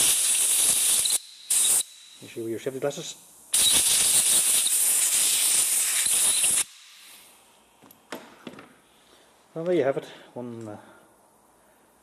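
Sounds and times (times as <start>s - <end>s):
compressed air hissing: 0.0s - 7.6s.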